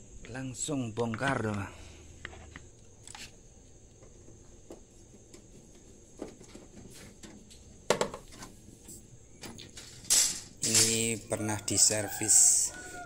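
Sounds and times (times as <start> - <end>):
metal clank: 9.7 - 11.1
screwdriver and sheet metal clinks: 9.8 - 11.2.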